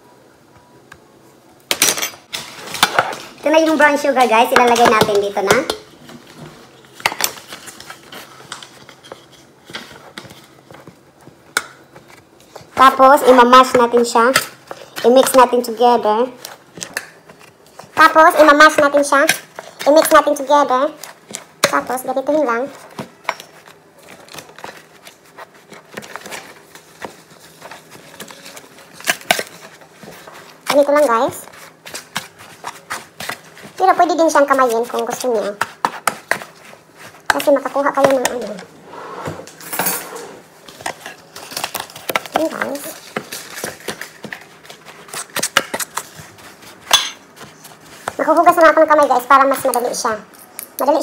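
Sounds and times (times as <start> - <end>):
utensils clinking against mixing bowl: 46.8 - 47.5.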